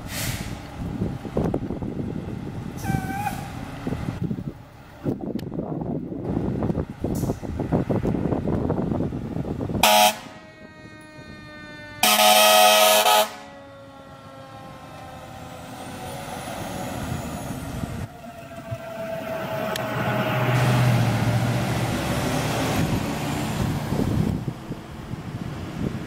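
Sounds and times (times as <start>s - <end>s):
low engine rumble: 0.0s - 12.2s, 13.2s - 26.0s
air horn blasts: 9.8s - 13.7s, 18.2s - 20.7s
mechanical siren wailing: 9.8s - 17.1s, 17.8s - 20.9s.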